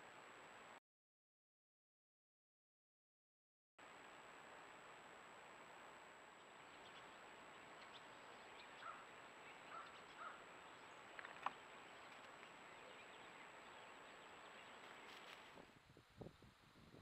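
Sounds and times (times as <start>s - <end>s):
recording hiss: 0.0s - 0.8s, 3.8s - 17.0s
faint high whine: 3.8s - 17.0s.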